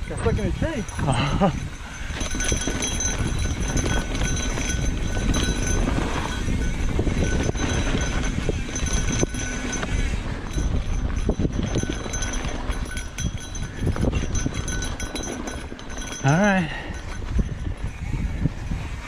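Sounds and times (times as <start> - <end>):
bike rattling and clattering: 0.0 - 19.0
bike tyres rumbling on trail: 0.0 - 19.0.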